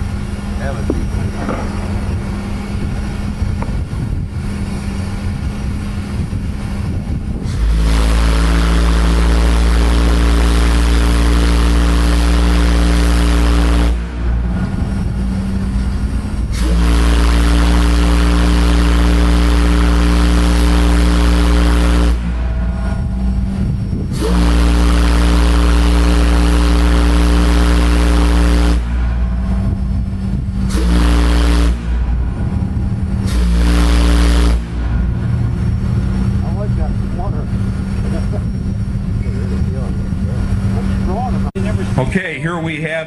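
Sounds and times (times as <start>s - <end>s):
steady low hum: 0.0s - 43.0s
deep steam whistle blasts: 4.5s - 36.7s.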